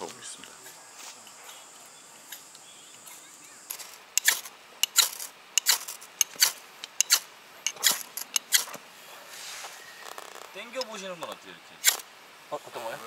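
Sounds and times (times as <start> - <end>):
knife scraping fire-starting rod: 3.7 - 10.6, 11.8 - 12.0.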